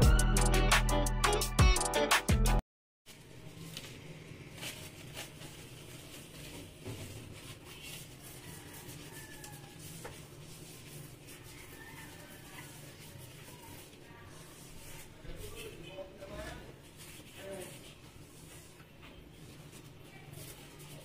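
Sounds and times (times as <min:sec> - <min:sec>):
cloth wiping glass cooktop: 0:04.4 - 0:21.0.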